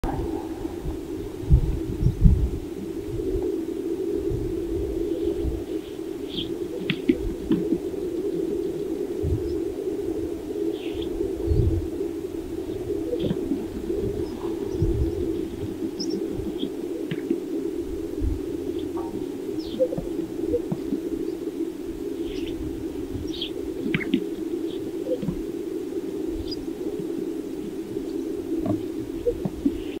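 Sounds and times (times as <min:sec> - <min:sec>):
low cooing chorus: 0:00.0 - 0:30.0.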